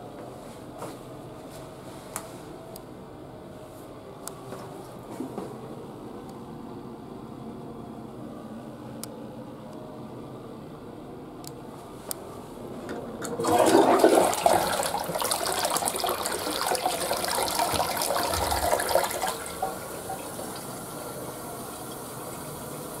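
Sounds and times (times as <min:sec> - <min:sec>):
toilet flush clicks: 0:12.9 - 0:20.8
tank refilling trickle: 0:13.2 - 0:23.0
toilet water rushing and draining: 0:13.2 - 0:23.0.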